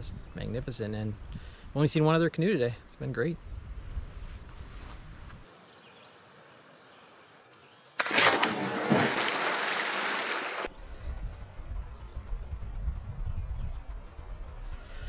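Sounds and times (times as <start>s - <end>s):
wind rumble on microphone: 0.0s - 1.7s, 3.4s - 5.5s, 10.7s - 15.0s
person splashing into water: 8.0s - 10.7s
spray and churning water: 8.0s - 10.7s.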